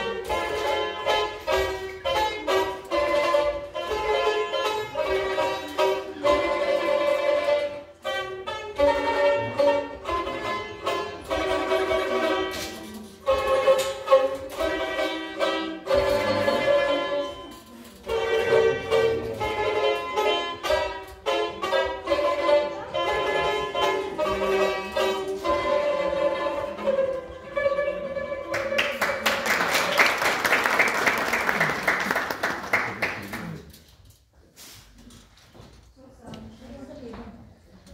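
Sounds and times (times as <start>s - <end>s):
plucked string instruments melody: 0.0s - 29.6s
audience applauding: 28.5s - 33.7s.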